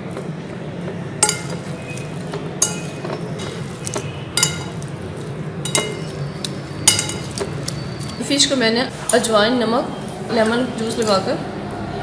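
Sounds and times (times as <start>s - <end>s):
forks clinking against glass bowl: 1.2s - 8.2s.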